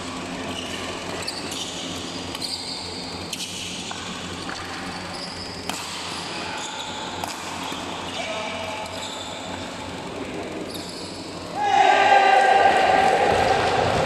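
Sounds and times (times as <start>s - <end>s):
busy sports hall noise: 0.0s - 14.0s
shoes squeaking on court floor: 0.2s - 9.7s, 10.6s - 11.4s
racket hitting shuttlecock: 5.6s - 7.9s.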